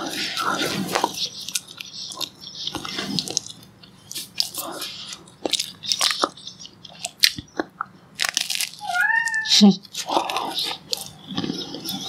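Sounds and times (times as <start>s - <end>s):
chewing crunchy toast: 0.0s - 12.0s.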